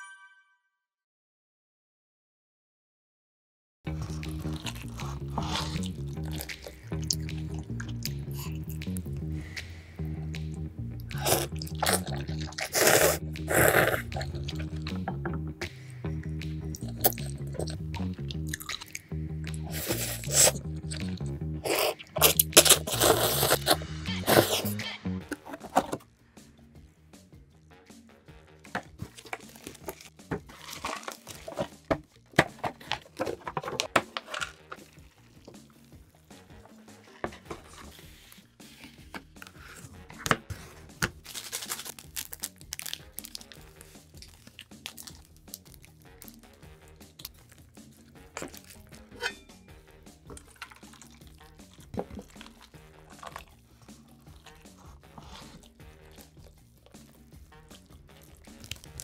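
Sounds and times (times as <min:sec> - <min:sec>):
slurping and chewing noodles: 0:03.9 - 0:26.1, 0:28.6 - 0:49.2, 0:49.8 - 0:59.0
background music: 0:03.9 - 0:59.0
plastic packet crinkling and tearing: 0:21.7 - 0:26.0, 0:29.0 - 0:32.0, 0:32.6 - 0:35.2, 0:41.1 - 0:46.4.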